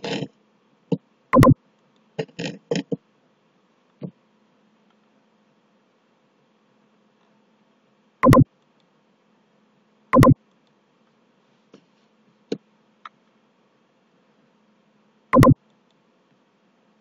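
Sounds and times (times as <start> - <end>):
faint steady hum: 0.0 - 17.0
computer mouse clicks: 1.4 - 1.6, 8.2 - 8.4, 15.4 - 16.0.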